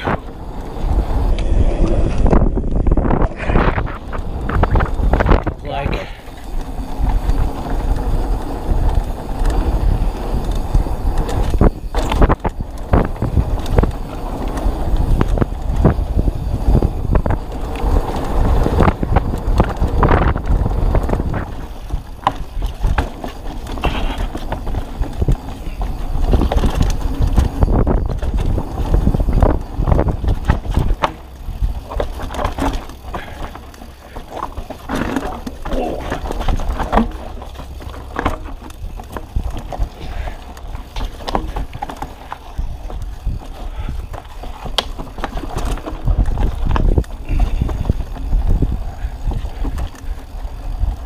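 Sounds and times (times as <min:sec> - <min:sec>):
bike knocks and rattles: 0:00.0 - 0:51.0
tyres rolling on dirt: 0:00.0 - 0:51.0
wind buffeting microphone: 0:00.0 - 0:51.0.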